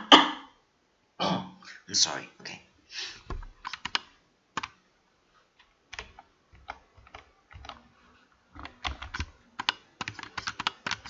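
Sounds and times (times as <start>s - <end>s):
computer mouse clicks: 3.3s - 4.8s, 5.9s - 7.9s, 8.6s - 11.0s
keyboard clicks: 3.3s - 4.8s, 5.9s - 7.8s, 8.6s - 11.0s.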